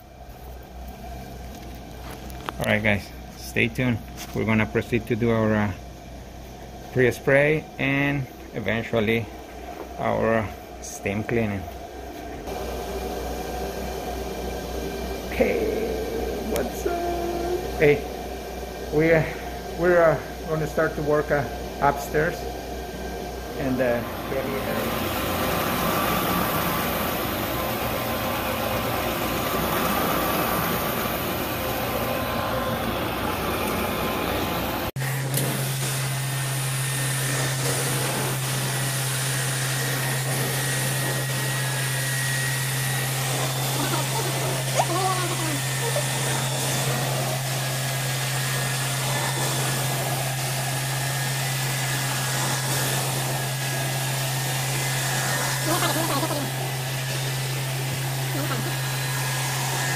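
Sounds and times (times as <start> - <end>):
steady low hum: 0.0 - 35.0
carpet cleaning machine rushing: 6.8 - 59.9.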